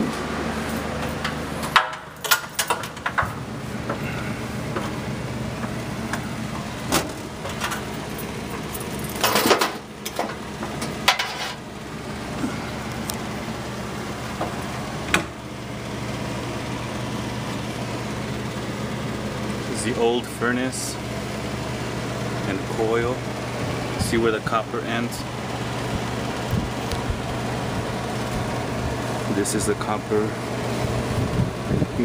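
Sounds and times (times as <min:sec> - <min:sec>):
steady low hum: 0:00.0 - 0:32.0.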